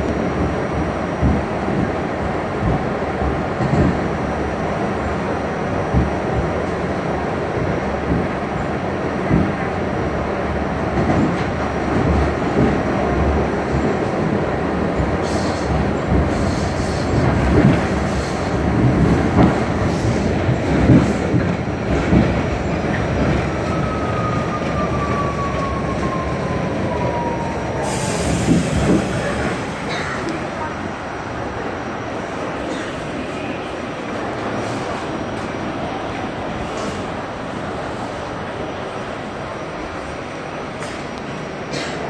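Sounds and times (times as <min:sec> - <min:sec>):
train wheels rumbling on rail: 0:00.0 - 0:42.0
train brakes whining: 0:23.6 - 0:30.3.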